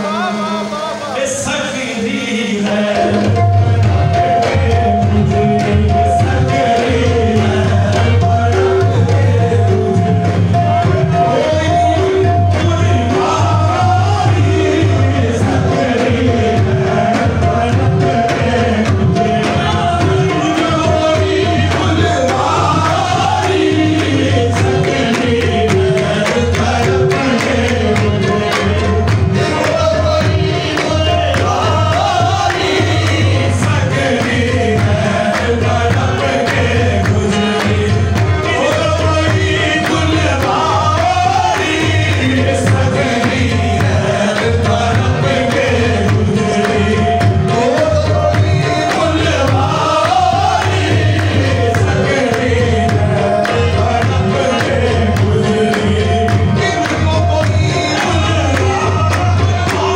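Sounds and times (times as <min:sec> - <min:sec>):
chorus singing: 0:00.0 - 0:59.9
drumming: 0:00.0 - 0:59.9
man singing lead: 0:00.0 - 0:59.9
rhythmic hand claps: 0:02.9 - 0:59.9.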